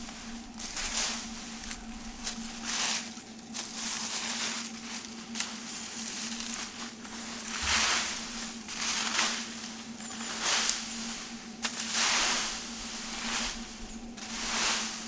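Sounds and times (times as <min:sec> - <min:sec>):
rake dragging dry leaves: 0:00.0 - 0:15.0.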